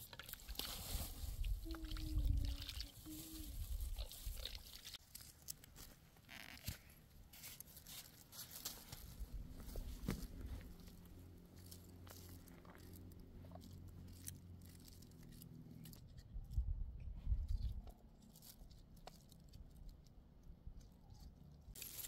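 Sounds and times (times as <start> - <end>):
wind rumbling on microphone: 0.8 - 4.5, 16.2 - 17.9
faint voice-like tone: 1.6 - 3.8.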